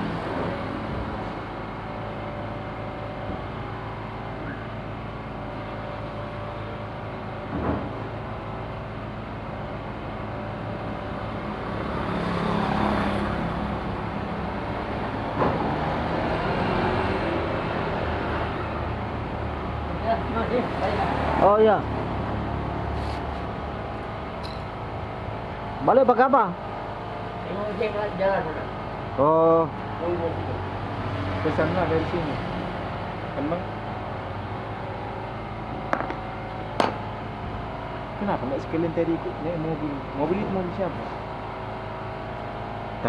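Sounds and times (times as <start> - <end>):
traffic engine hum: 0.0 - 43.0
vehicle passing by: 11.5 - 19.0, 19.9 - 23.6, 29.3 - 33.7.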